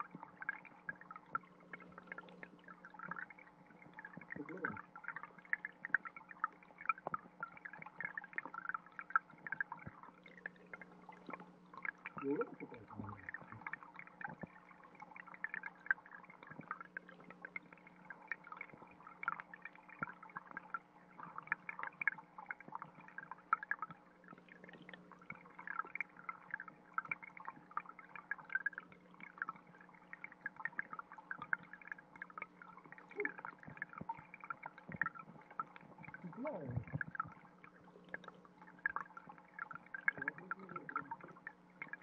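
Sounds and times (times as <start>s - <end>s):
underwater trickling crackle: 0.0s - 42.0s
steady low hum: 8.5s - 21.2s.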